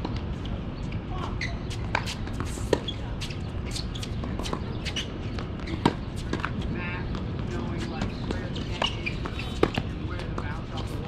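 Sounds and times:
shoe scuffs on hard court: 1.4 - 6.5, 7.7 - 10.0
ball bouncing: 1.7 - 10.6.

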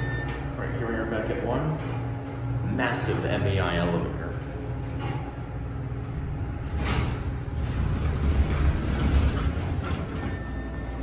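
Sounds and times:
elevator doors sliding open: 0.0 - 0.8, 4.7 - 11.0
elevator machinery rumble: 0.0 - 11.0.

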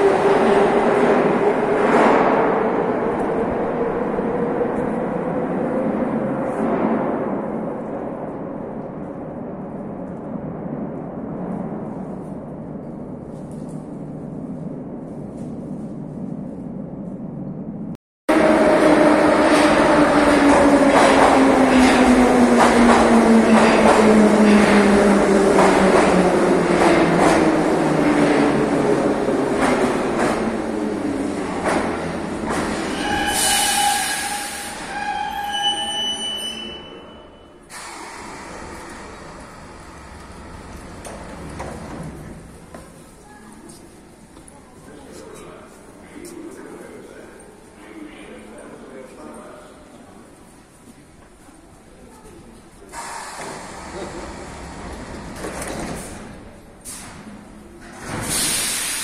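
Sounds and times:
low rumble of station platform: 0.0 - 59.0
train brakes squealing: 32.9 - 38.2
train hiss: 52.9 - 54.3, 58.2 - 59.0.

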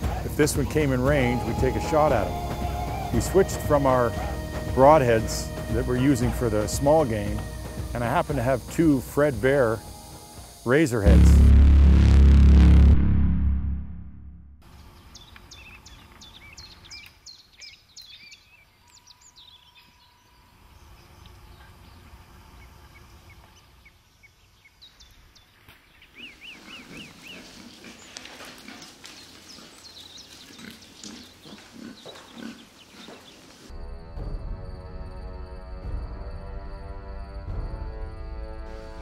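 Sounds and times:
wild boar grunting: 3.8 - 5.0, 26.5 - 33.6.

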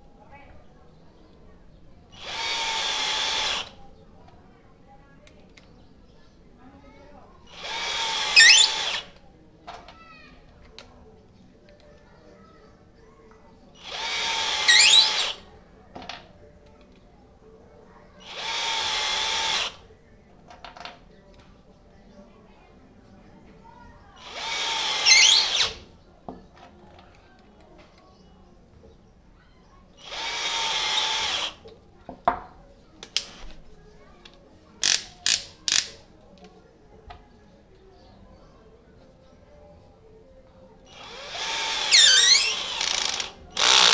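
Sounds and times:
drill motor whine: 7.6 - 9.0, 13.8 - 15.4, 24.3 - 25.7, 41.0 - 43.9
high squeal rising in pitch: 8.3 - 8.9, 14.6 - 15.4, 25.0 - 25.7, 41.8 - 42.7.

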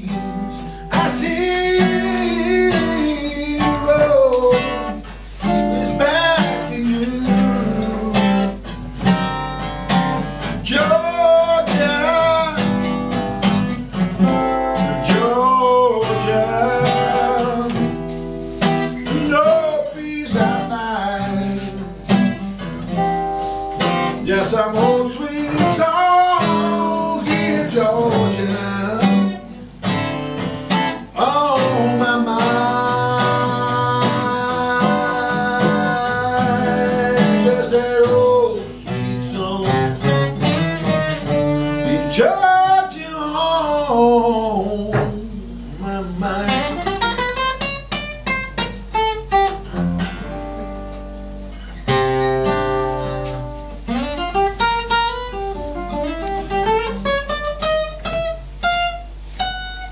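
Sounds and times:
man singing: 0.0 - 9.3, 10.5 - 13.2, 14.2 - 22.5, 24.1 - 29.8, 30.4 - 47.3
fingerpicked acoustic guitar: 0.0 - 59.9.

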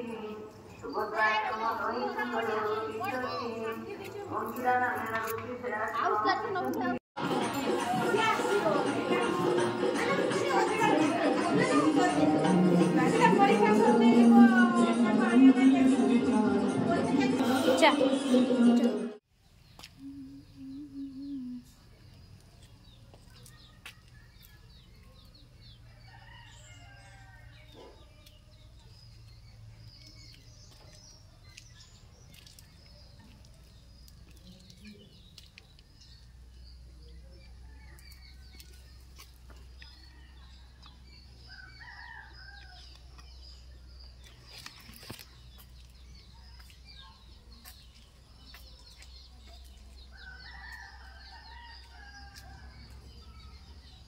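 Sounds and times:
faint bird calls and chirps: 19.5 - 52.6.

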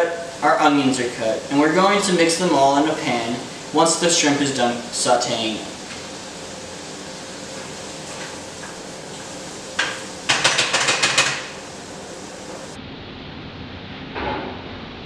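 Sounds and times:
spatula knocking on frying pan: 9.8 - 11.5.

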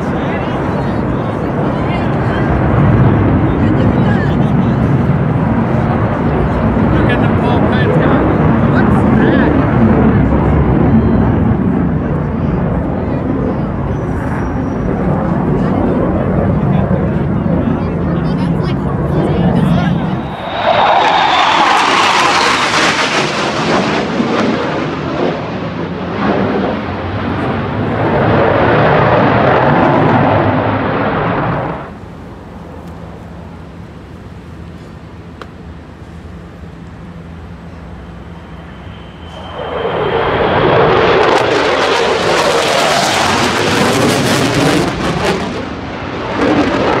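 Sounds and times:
jet roaring overhead: 0.0 - 47.0.

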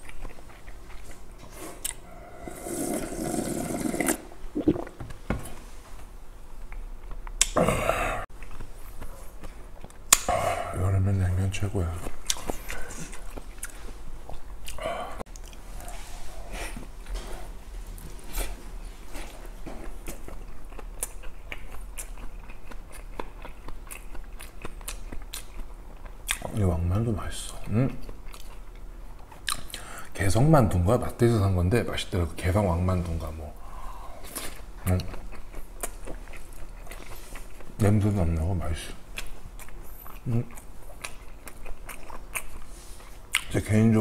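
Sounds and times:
person chewing with wet clicks: 0.0 - 2.1, 8.3 - 10.4, 12.0 - 15.6, 19.2 - 26.7, 27.5 - 29.8, 34.2 - 37.8, 38.9 - 43.6
slurping gulps of broth: 2.3 - 5.0.

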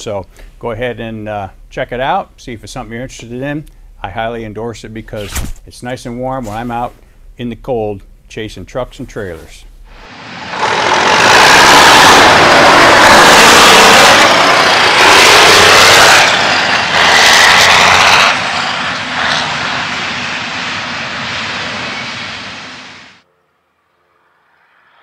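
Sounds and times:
diesel truck driving past: 10.1 - 23.1.

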